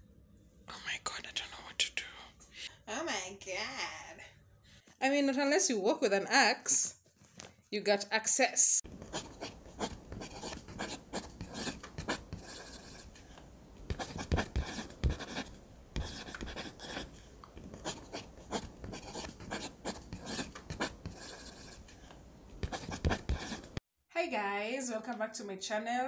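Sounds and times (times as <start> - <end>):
handling noise scratching and rubbing: 8.9 - 13.3, 13.9 - 22.0, 22.6 - 23.8.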